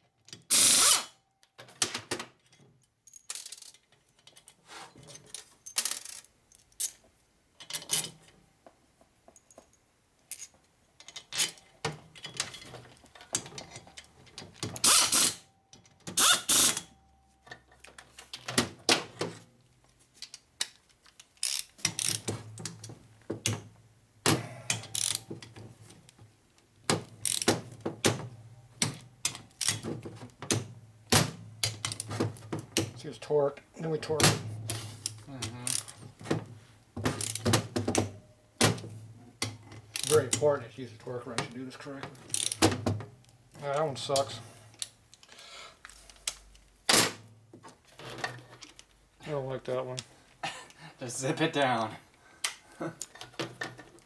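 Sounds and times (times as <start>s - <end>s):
metal clicks of socket and bolts: 9.4s - 18.5s, 20.2s - 23.7s, 24.7s - 25.6s, 26.9s - 28.2s, 28.8s - 30.6s, 31.6s - 32.1s, 34.6s - 36.0s, 39.4s - 40.6s, 42.2s - 46.8s.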